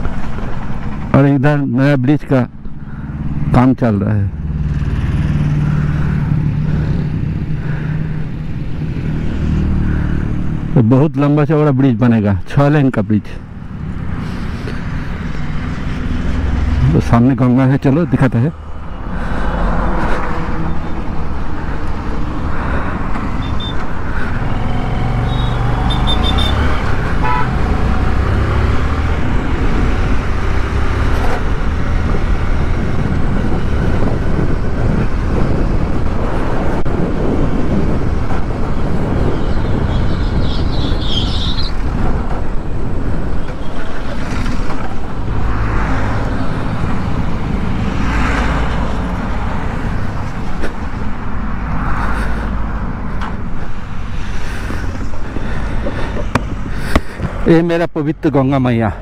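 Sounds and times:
passing traffic: 0.0 - 59.0
wind rumble on microphone: 26.7 - 57.5.

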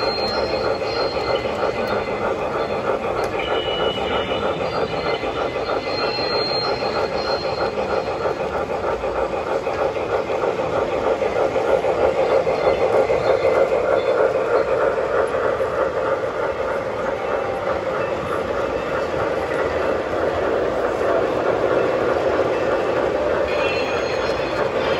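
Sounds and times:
model train running on track: 0.0 - 24.9
rapid steam chuffing: 0.0 - 24.9.

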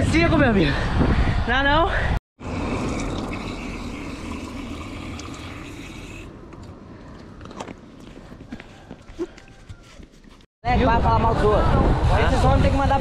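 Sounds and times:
water pouring from a bottle: 2.4 - 6.3.

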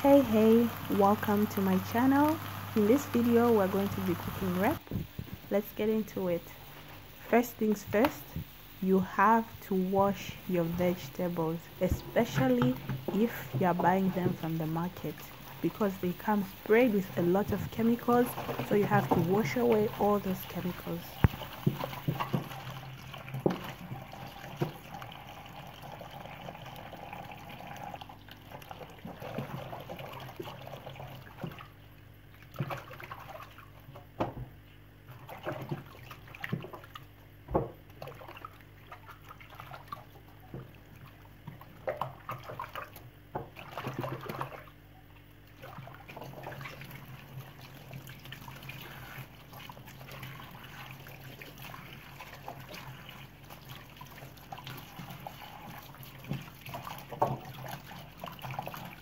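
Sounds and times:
hands rinsing greens in water: 0.0 - 6.4
tap water running into sink: 10.1 - 31.7, 45.6 - 59.0.

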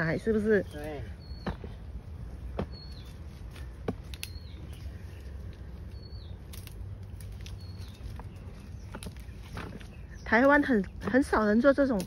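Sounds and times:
bird chirping: 0.0 - 11.9.

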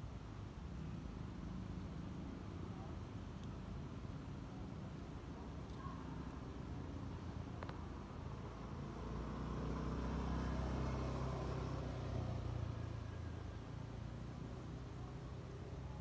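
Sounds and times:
vehicle engine passing by: 8.4 - 16.0.

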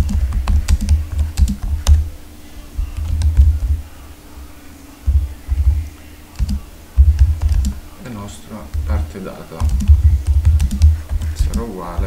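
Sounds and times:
computer keyboard typing: 0.0 - 2.0, 2.8 - 3.8, 5.1 - 7.8, 8.7 - 12.0.

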